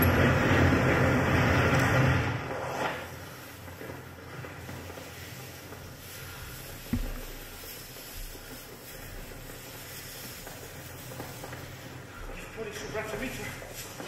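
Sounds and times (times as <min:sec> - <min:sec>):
foil blanket rustling and crinkling: 0:02.8 - 0:14.0.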